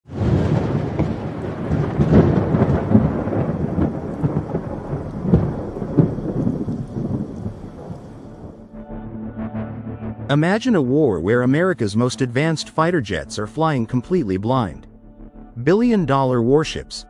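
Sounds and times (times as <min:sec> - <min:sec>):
rolling thunder: 0:00.1 - 0:08.7
steady rain: 0:00.1 - 0:08.7.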